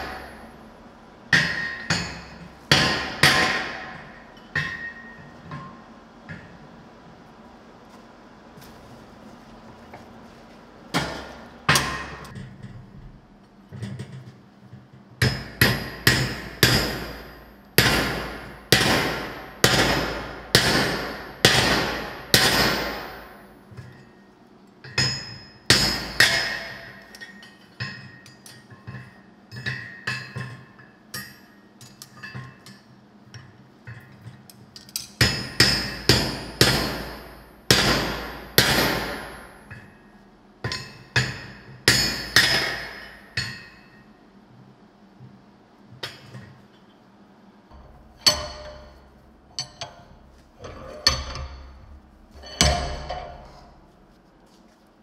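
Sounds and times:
sledgehammer ringing on steel: 0.0s - 0.7s, 15.2s - 23.6s, 25.0s - 27.0s, 35.2s - 39.9s, 40.7s - 44.0s.

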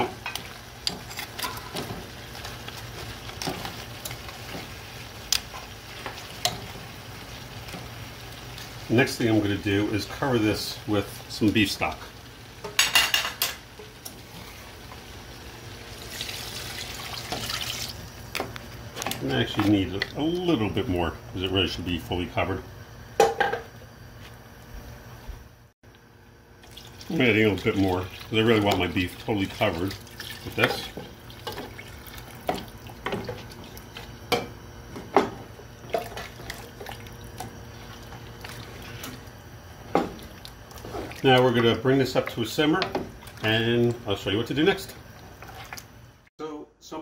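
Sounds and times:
liquid pouring into pot: 15.8s - 18.0s, 26.6s - 34.1s, 35.8s - 39.0s.

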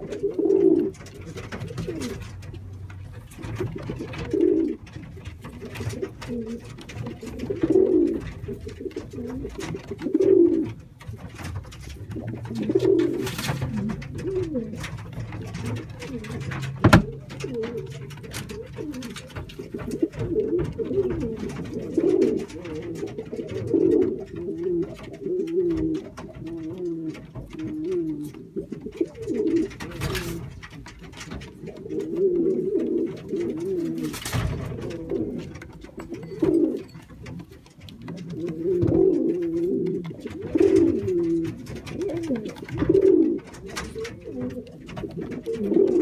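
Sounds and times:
pigeon cooing: 0.0s - 46.0s
sharp knocks: 11.0s - 24.2s.

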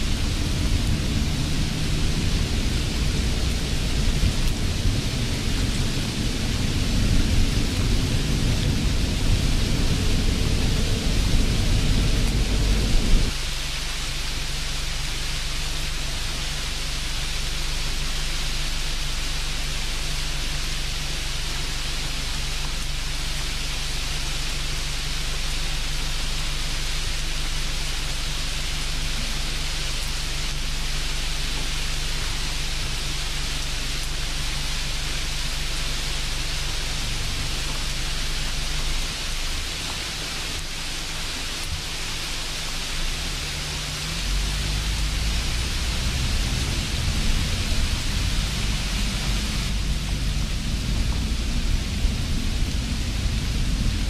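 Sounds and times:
deep rumble: 0.0s - 13.5s, 27.8s - 54.0s
steady hiss: 0.0s - 54.0s.

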